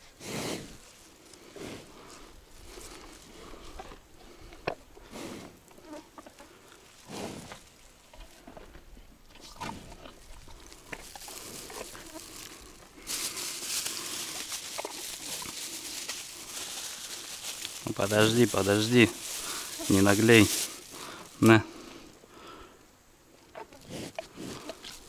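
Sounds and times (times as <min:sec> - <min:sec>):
steady hiss: 0:08.9 - 0:25.0
animal sniffing: 0:09.3 - 0:22.0, 0:23.8 - 0:25.0.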